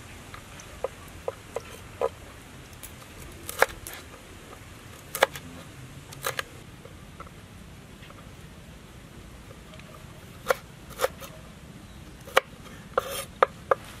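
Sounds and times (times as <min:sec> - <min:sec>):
knife chopping on cutting board: 0:12.3 - 0:13.8.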